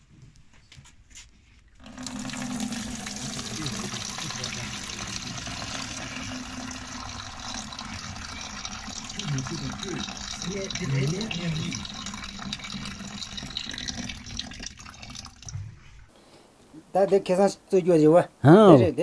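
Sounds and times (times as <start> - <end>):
liquid splashing into metal tub: 1.8 - 16.0.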